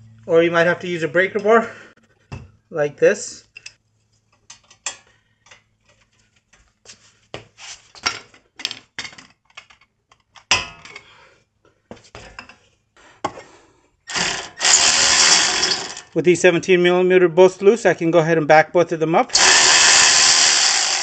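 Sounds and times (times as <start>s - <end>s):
cordless ratchet running: 14.1s - 16.1s, 19.4s - 21.0s.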